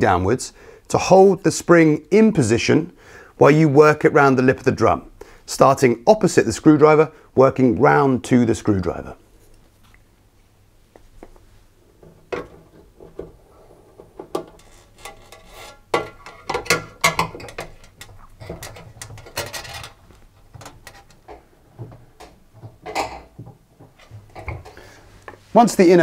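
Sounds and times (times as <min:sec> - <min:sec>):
metal spring clicks and scrapes: 0:14.4 - 0:20.0.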